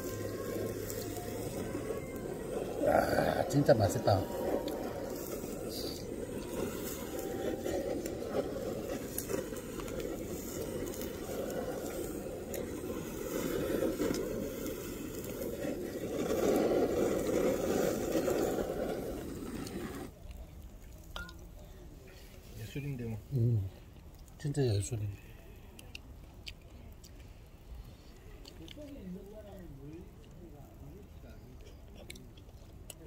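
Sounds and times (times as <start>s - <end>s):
butane torch flame rushing: 0.0s - 20.2s.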